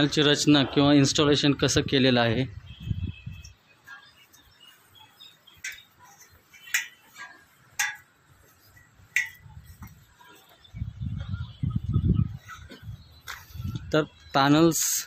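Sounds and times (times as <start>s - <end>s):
footsteps on metal ladder rungs: 5.5s - 10.7s.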